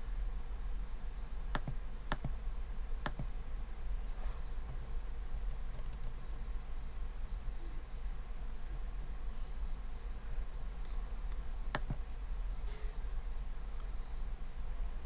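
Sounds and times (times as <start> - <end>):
steady low hum: 0.0 - 15.0
sharp clicks: 1.5 - 2.4, 3.0 - 3.3, 4.7 - 6.4, 10.6 - 12.0
light ticks of laptop tapping: 1.6 - 2.4.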